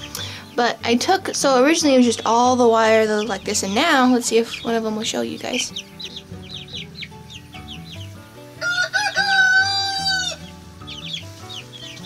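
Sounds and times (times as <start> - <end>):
chicks peeping: 0.0 - 12.0
rooster crowing: 8.6 - 10.5.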